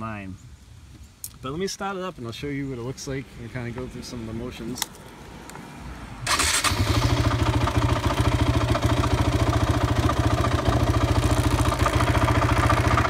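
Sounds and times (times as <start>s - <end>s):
engine idling: 6.3s - 13.0s.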